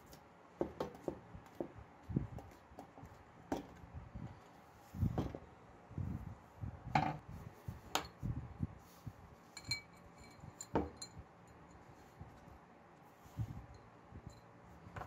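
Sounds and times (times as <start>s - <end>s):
ringing metallic clink: 9.6s - 11.2s.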